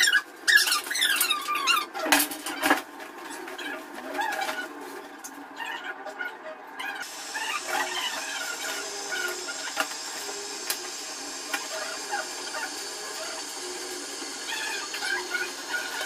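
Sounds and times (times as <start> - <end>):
high squeaks and chirps: 0.0 - 2.0.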